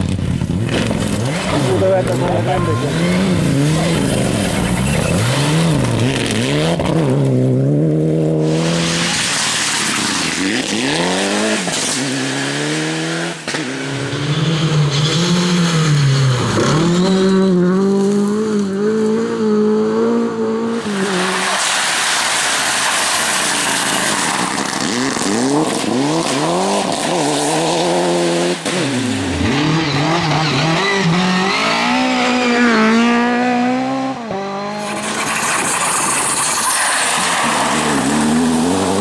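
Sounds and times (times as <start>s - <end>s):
rally car engines revving: 0.0s - 39.0s
gravel spraying under tyres: 8.5s - 12.6s, 20.9s - 27.8s, 34.8s - 39.0s.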